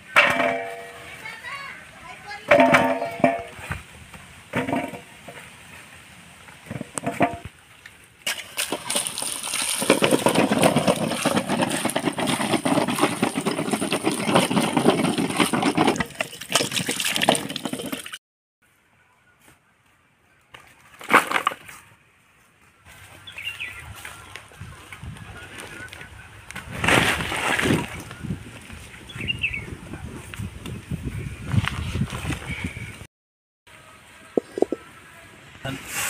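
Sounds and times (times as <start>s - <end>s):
water splashing into steel bowl: 8.2s - 10.4s, 15.9s - 18.2s.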